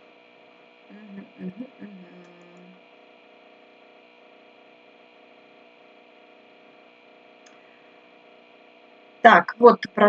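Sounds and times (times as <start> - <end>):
electrical mains hum with hiss: 0.0 - 10.0
brief low voice: 0.9 - 2.8.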